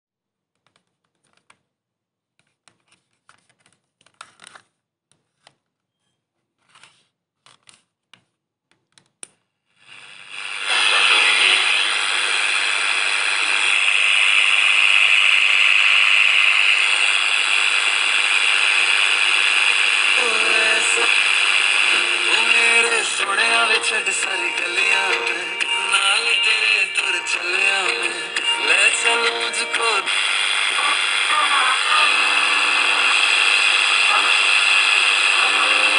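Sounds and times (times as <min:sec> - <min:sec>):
radio static hiss: 0:09.8 - 0:35.9.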